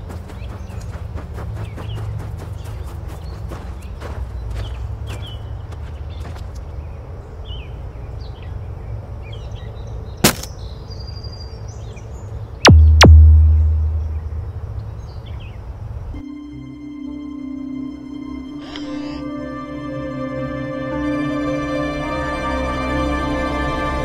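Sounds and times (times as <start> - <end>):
bird chirps: 1.6 - 15.7
zaps falling into deep boom: 12.7 - 14.6
low steady rumble: 12.7 - 15.5.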